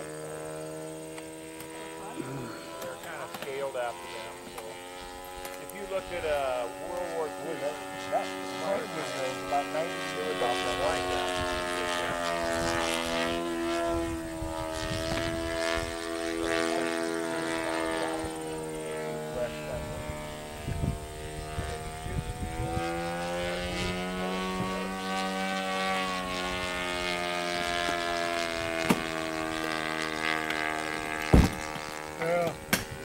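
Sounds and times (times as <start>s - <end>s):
model aircraft engine: 0.0s - 33.0s
sharp knock: 31.3s - 31.6s.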